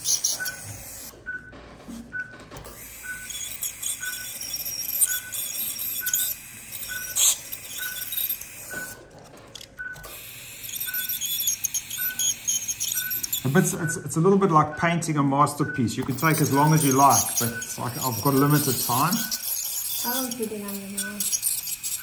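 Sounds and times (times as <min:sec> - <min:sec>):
dental scaler hissing: 0:00.0 - 0:01.2, 0:02.7 - 0:09.0, 0:10.0 - 0:14.1, 0:16.0 - 0:22.0
monitor beeping: 0:00.0 - 0:22.0
scaler tip clicking on teeth: 0:16.3 - 0:22.0.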